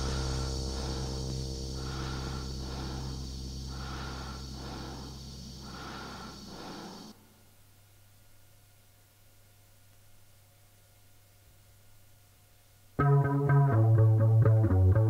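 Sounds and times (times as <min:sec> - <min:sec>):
low hum: 0:00.0 - 0:07.9.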